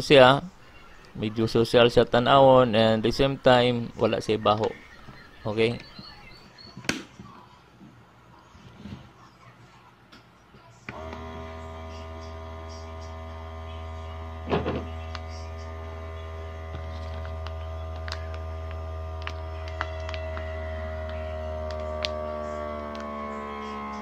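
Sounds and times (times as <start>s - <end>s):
vacuum sealer pump motor humming: 10.9s - 24.0s.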